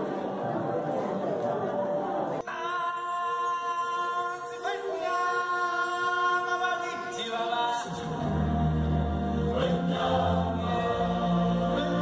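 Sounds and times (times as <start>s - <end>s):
choir singing held chords: 7.7s - 12.0s.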